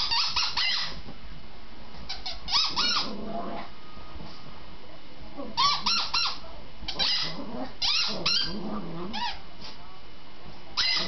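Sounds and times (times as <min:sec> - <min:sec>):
dog toy squeaking: 0:00.0 - 0:01.0, 0:02.1 - 0:03.1, 0:05.6 - 0:09.4, 0:10.8 - 0:11.0.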